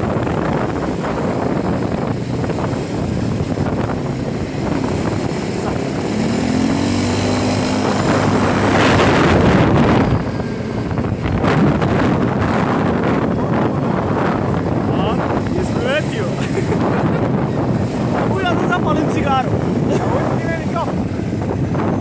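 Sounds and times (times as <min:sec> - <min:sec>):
quad bike engine running: 0:00.0 - 0:22.0
wind and road noise: 0:00.0 - 0:22.0.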